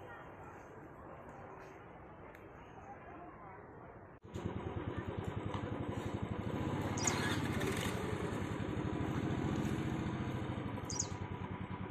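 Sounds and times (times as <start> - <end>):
small engine running: 4.2 - 11.9
high chirp: 6.9 - 7.4, 10.8 - 11.2.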